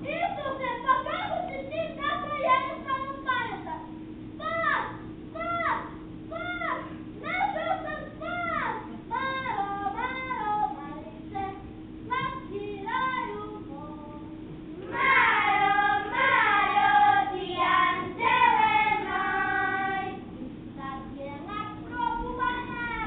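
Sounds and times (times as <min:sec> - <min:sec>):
child singing: 0:07.3 - 0:23.0
children singing together: 0:14.8 - 0:20.3.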